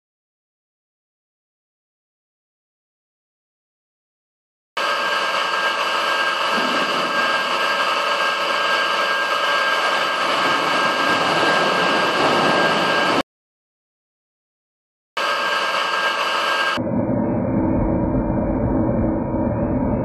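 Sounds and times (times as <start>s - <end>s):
steady machine hum: 4.8s - 13.2s, 15.2s - 20.0s
water rushing through channel: 6.4s - 13.2s.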